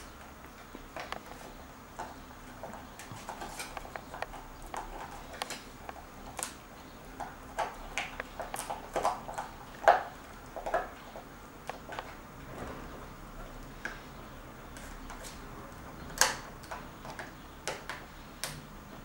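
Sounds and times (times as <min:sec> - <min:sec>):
puppy gnawing crunching: 0:00.6 - 0:12.2.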